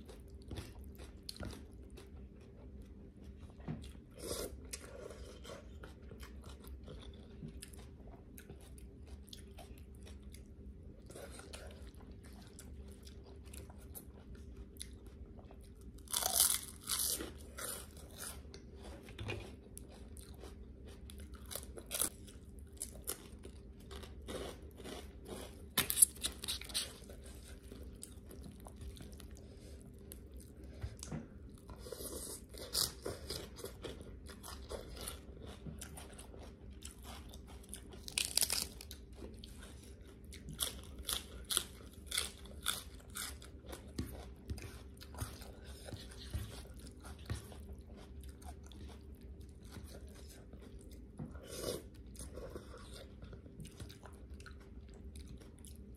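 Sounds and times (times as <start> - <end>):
quiet chewing: 0.0 - 55.9
crunching fried pork rinds: 15.9 - 18.4, 32.6 - 45.2.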